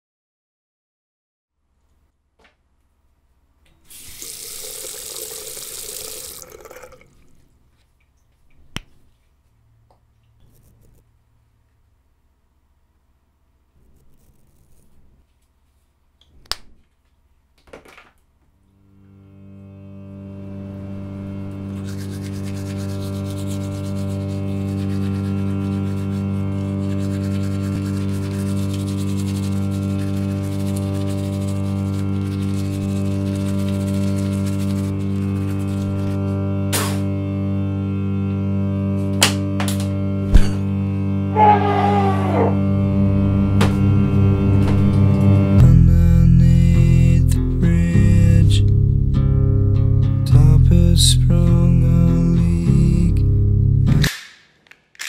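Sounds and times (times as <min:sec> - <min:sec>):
sink tap running: 0:03.9 - 0:07.1
low steady drone: 0:18.8 - 0:39.2, 0:39.8 - 0:54.1
toothbrush scrubbing teeth: 0:21.6 - 0:36.3.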